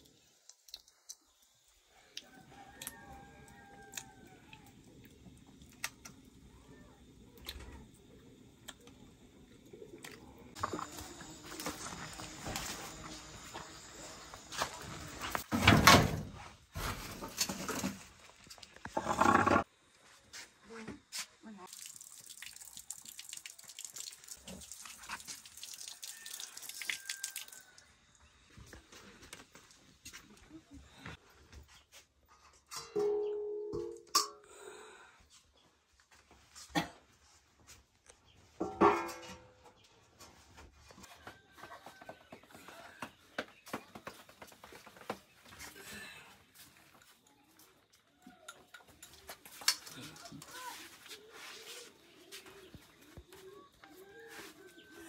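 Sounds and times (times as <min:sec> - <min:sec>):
splashes and drips: 0:21.7 - 0:27.8.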